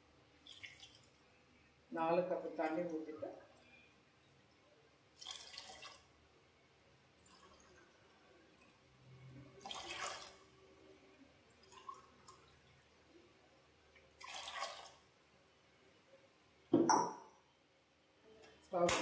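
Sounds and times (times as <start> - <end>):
water pouring into steel pot: 0.4 - 1.2, 5.1 - 6.1, 7.2 - 8.7, 9.5 - 10.6, 11.5 - 12.8, 14.0 - 15.1.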